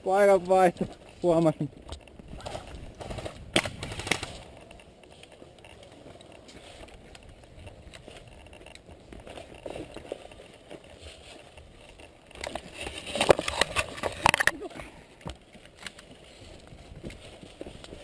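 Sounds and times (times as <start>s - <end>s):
gear rustling: 0.2s - 18.0s
sharp cracks: 1.9s - 4.9s.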